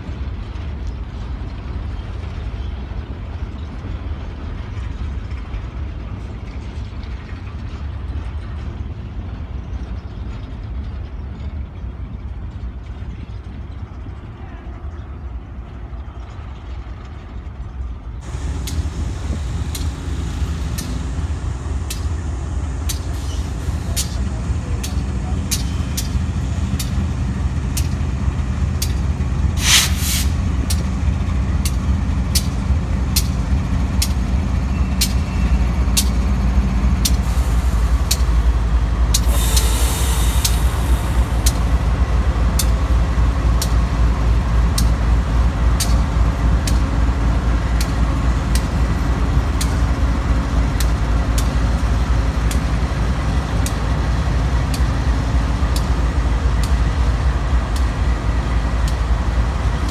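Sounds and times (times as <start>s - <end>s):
locomotive engine drone: 0.0s - 59.9s
wheels clicking on rail: 0.0s - 59.9s
air hissing: 18.2s - 24.4s, 29.6s - 30.4s, 39.1s - 41.8s.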